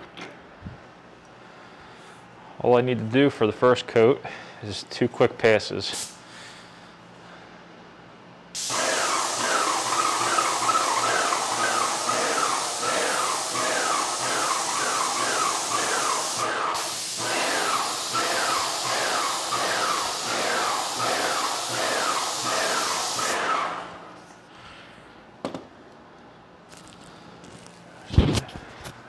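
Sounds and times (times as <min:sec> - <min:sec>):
pump beating: 0:08.6 - 0:23.7
paint sprayer hissing: 0:08.6 - 0:24.2.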